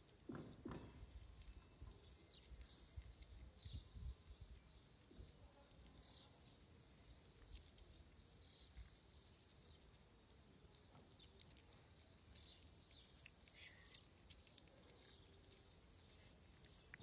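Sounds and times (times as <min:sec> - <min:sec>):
kittens crunching dry kibble: 0:00.0 - 0:17.0.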